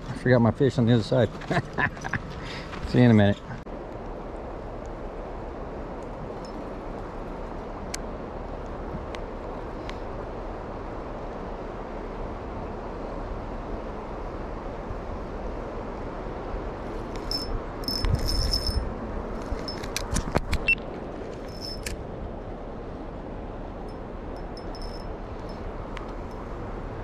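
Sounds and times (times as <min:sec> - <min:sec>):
river water running: 0:00.0 - 0:27.0
fishing reel clicking and rattling: 0:17.2 - 0:18.8.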